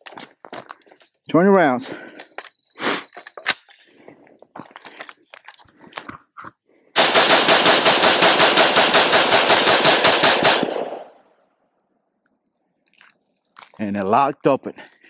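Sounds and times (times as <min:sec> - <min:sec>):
rifle shots in rapid succession: 0:07.0 - 0:11.2.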